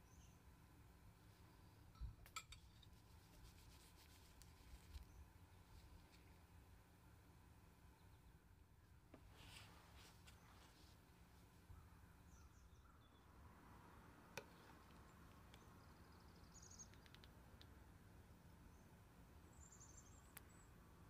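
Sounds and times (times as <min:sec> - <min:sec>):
faint low hum: 0:00.0 - 0:21.0
faint clicks: 0:16.7 - 0:17.8.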